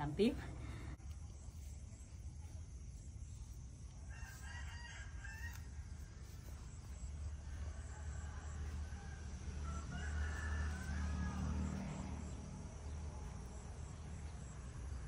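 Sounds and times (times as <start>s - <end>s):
faint rooster crowing: 4.0s - 13.0s.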